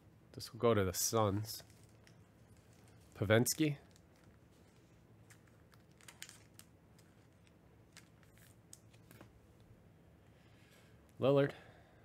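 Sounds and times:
trading cards clicking and rustling: 1.4s - 9.4s.

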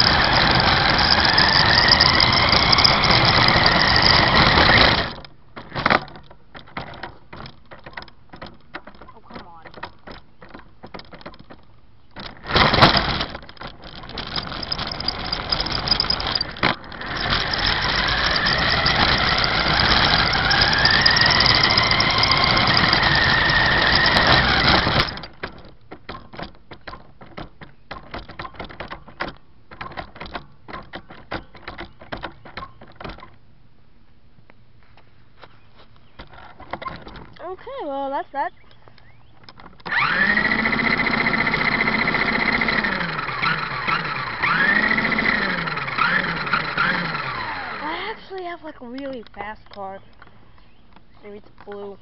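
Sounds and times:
toy car motor whirring: 0.0s - 6.0s, 12.2s - 25.6s, 39.8s - 50.0s
light clicks and rattles: 0.0s - 33.4s, 34.4s - 52.0s.

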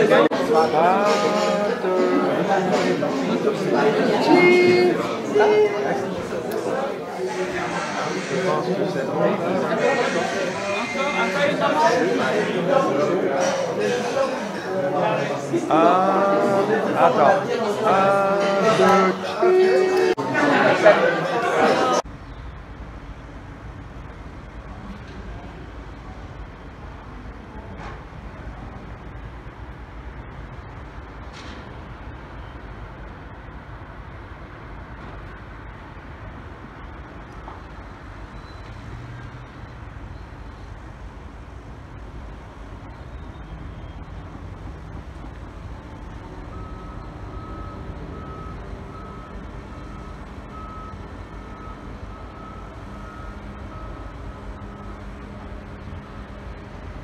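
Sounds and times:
city traffic rumble: 0.0s - 57.0s
reversing alarm beeping: 7.3s - 12.1s, 45.6s - 56.9s.

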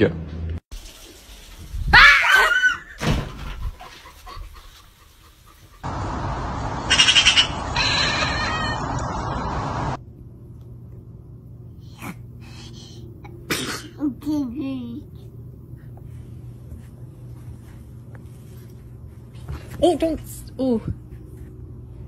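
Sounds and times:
steady outdoor hiss: 3.7s - 22.0s
short pitched animal cry: 6.9s - 9.0s.

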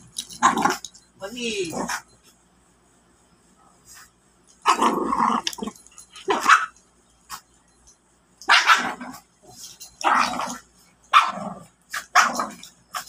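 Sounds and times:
puppies growling barks: 4.6s - 6.7s, 8.5s - 9.2s, 10.0s - 12.7s.

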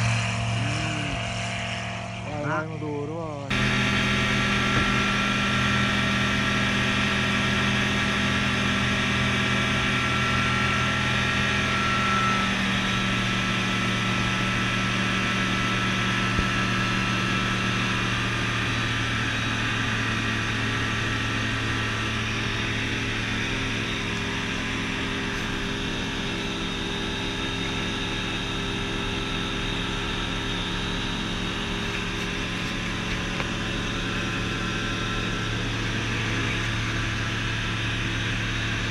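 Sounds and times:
aircraft engine and propeller droning: 0.0s - 38.9s.

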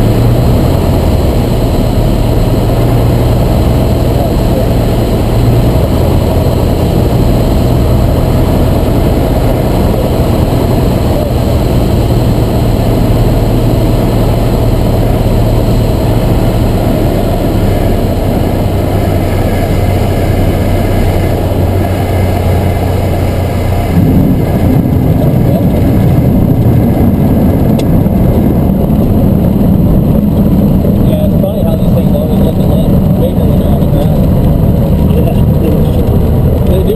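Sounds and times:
light aircraft engine in cabin: 0.0s - 36.9s.

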